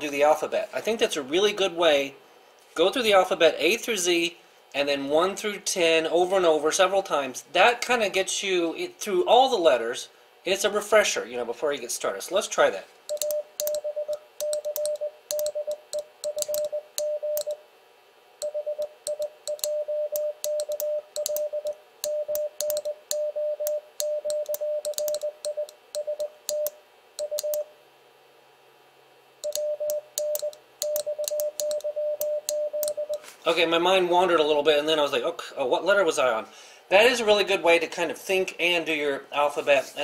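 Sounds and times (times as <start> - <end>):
morse code tone: 13.1 - 17.6, 18.4 - 27.7, 29.4 - 33.3.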